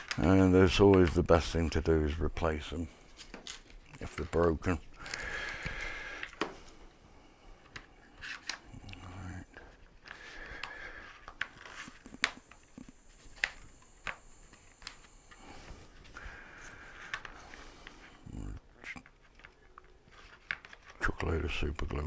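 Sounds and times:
plastic clicks and scrapes: 18.9 - 22.0.

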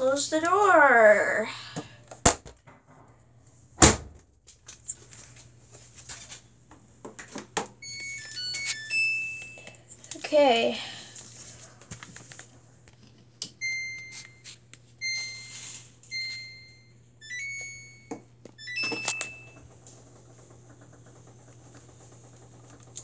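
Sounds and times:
washing machine panel beeps: 7.8 - 9.8, 13.6 - 19.6.

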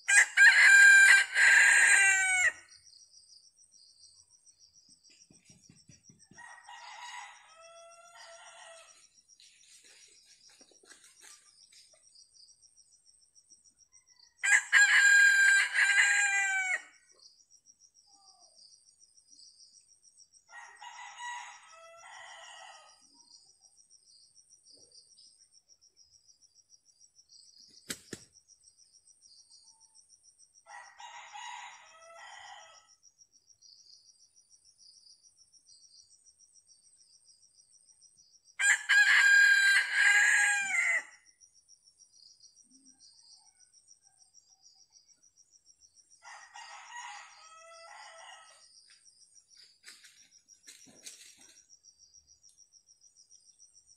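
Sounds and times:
rooster crowing: 0.1 - 2.7, 6.4 - 9.0, 14.3 - 17.0, 20.5 - 23.0, 38.6 - 41.2, 46.2 - 48.7
crickets trilling: 0.1 - 53.9.

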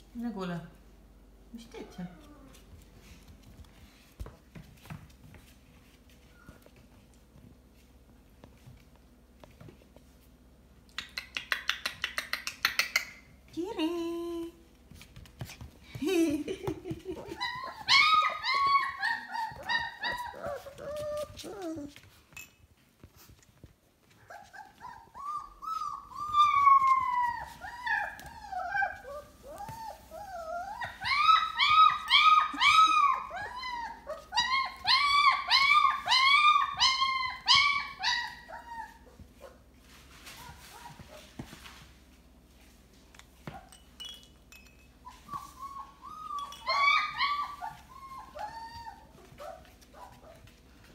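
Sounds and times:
puppies whining and yipping: 17.0 - 22.2, 24.1 - 41.4, 44.8 - 50.9.

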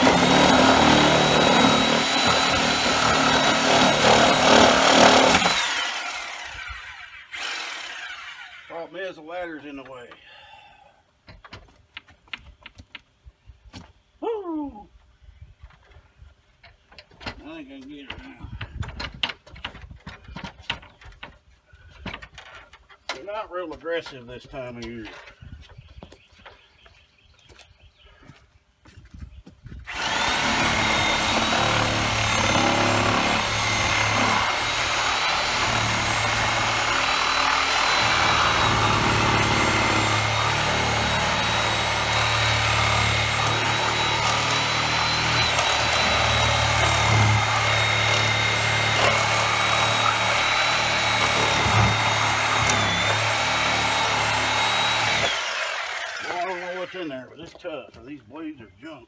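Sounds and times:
reciprocating saw cutting wood: 0.0 - 9.0, 29.9 - 57.2.

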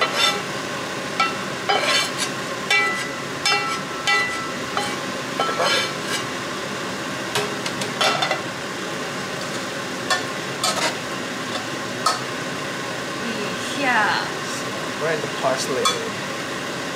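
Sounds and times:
metal spatula scraping and clinking: 0.0 - 0.5, 1.2 - 6.3, 10.1 - 11.0
oil sizzling: 0.0 - 16.9.

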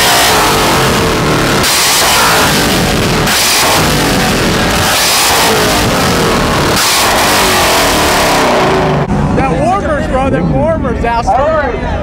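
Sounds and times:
heavy drum beat: 0.0 - 9.5
loud rock music: 0.0 - 11.0.

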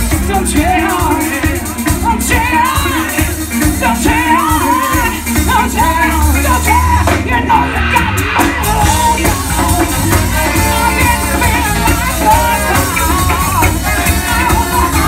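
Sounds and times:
live band with drums bass horns: 0.0 - 15.0
woman singing lead: 0.0 - 15.0.

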